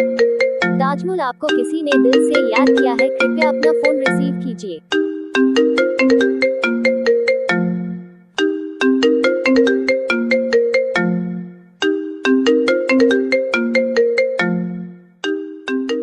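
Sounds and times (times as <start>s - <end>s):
mobile phone ringtone melody: 0.0s - 16.0s.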